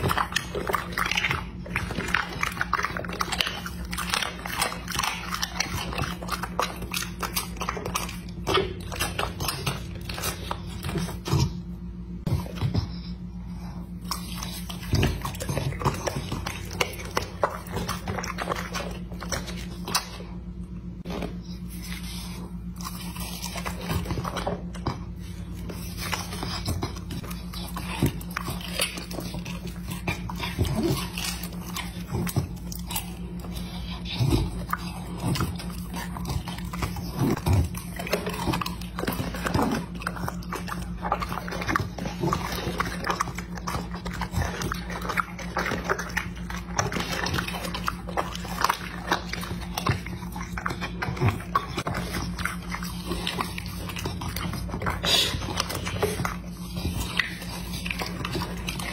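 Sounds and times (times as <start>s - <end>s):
dog chewing and lip smacking: 0.0s - 58.9s
steady low hum: 0.0s - 58.9s.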